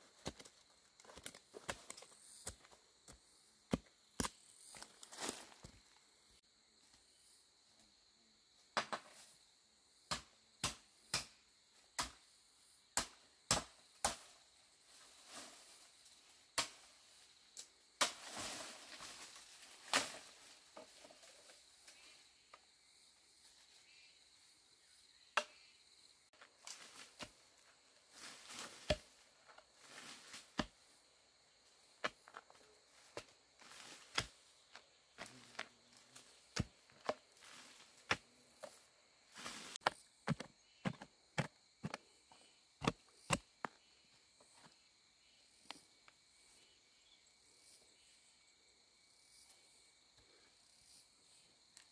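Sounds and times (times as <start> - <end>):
rustling and scraping: 35.3 - 42.1.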